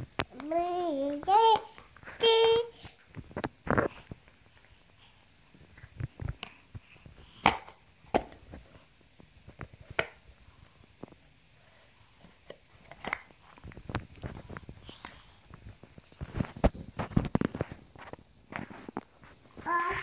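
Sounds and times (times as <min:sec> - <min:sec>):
small taps and rustles: 0:00.0 - 0:20.0.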